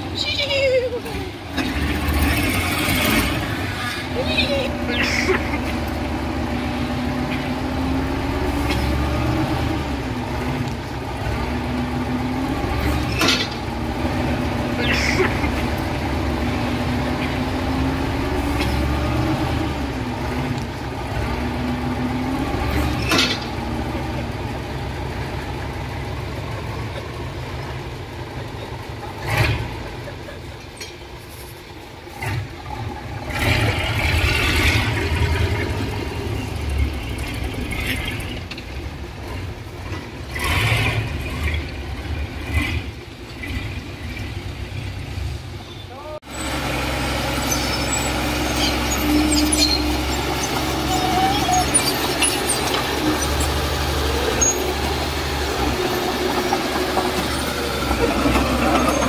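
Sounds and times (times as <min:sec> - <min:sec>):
diesel machinery engine: 0:00.0 - 0:59.0.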